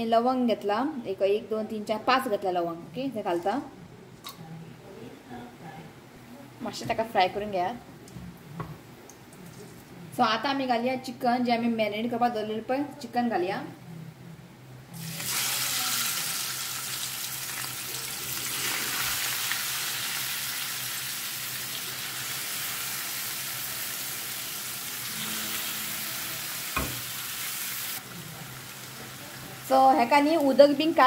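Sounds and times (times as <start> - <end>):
chicken sizzling in hot oil: 15.0 - 30.8
single knock: 26.8 - 27.0.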